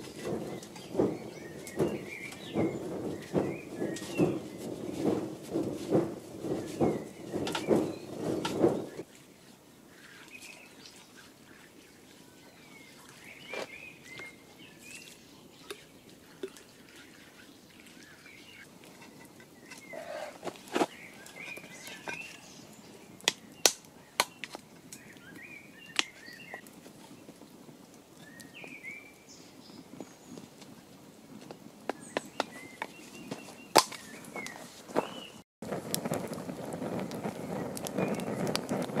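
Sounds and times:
wooden sticks knocking: 0.0 - 9.0
songbirds chirping: 0.0 - 35.4.

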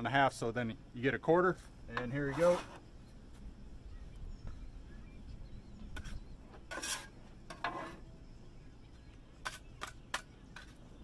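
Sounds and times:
metal spatula scraping metal: 2.0 - 2.8, 6.0 - 8.0, 9.4 - 10.8.

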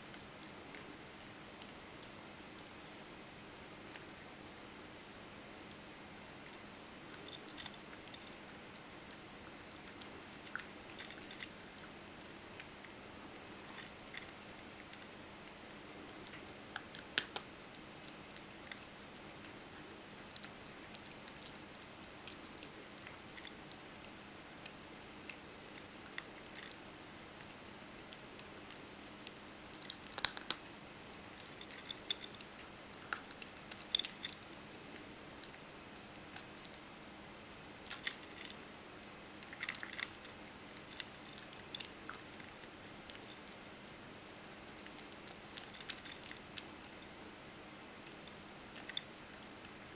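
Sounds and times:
cat crunching dry kibble: 6.4 - 35.6, 37.8 - 38.6, 39.4 - 47.2, 48.0 - 49.9.

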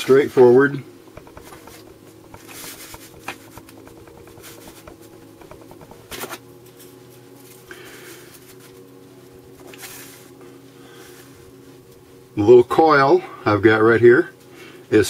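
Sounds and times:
faint steady hum: 0.0 - 15.0
paper rustling: 1.2 - 6.4.

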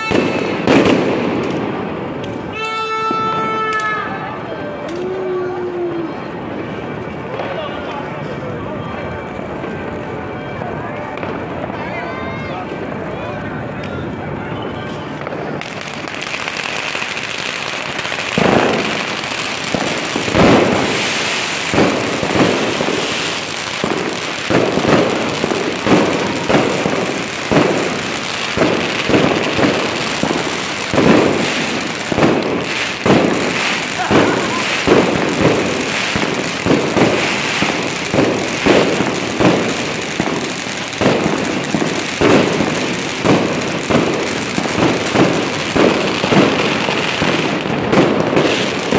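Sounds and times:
firework shells bursting: 15.6 - 48.9.

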